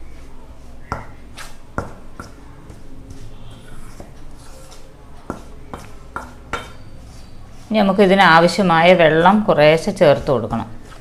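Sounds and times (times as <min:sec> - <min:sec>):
spoon scraping dry mix: 0:00.1 - 0:09.5.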